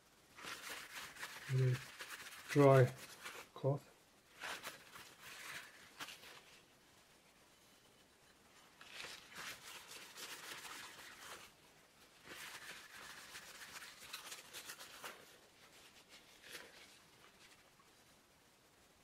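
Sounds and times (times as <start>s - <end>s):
paper towel rubbing on glass: 0.4s - 3.6s, 8.8s - 17.6s.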